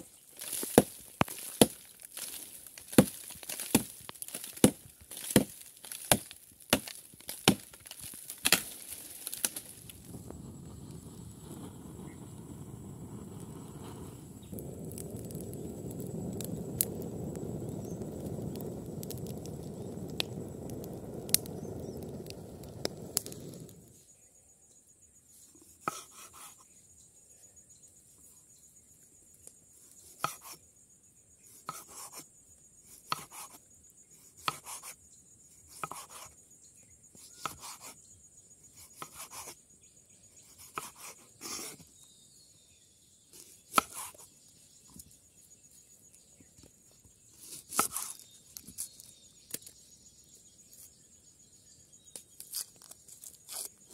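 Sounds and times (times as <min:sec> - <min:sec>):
wood fire crackling and hissing: 0:00.0 - 0:24.1, 0:46.8 - 0:51.4.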